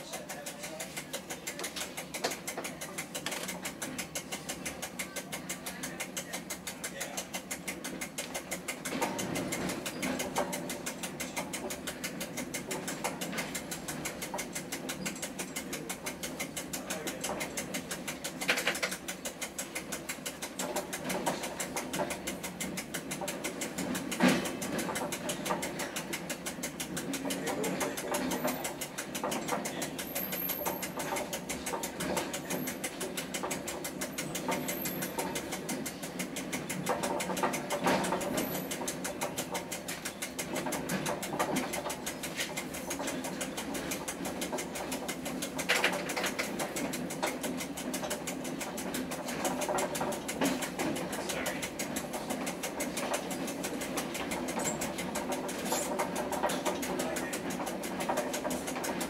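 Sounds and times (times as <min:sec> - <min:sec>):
train mechanical rattle: 0:00.0 - 0:59.0.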